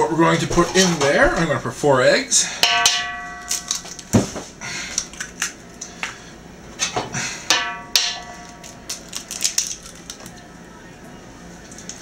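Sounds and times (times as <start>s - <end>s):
bowl ringing: 2.6s - 4.0s, 7.5s - 8.7s.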